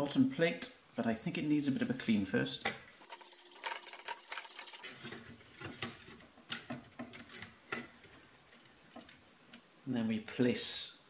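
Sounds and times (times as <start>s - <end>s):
metal parts clinking: 3.0s - 5.0s.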